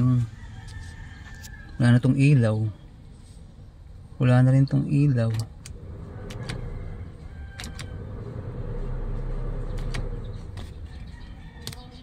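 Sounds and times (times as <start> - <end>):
car cabin hum: 5.2 - 11.9.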